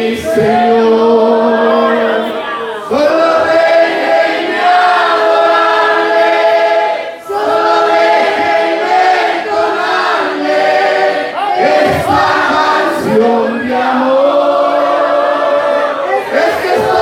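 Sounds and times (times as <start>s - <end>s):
man and woman singing duet: 0.0s - 3.9s, 11.6s - 17.0s.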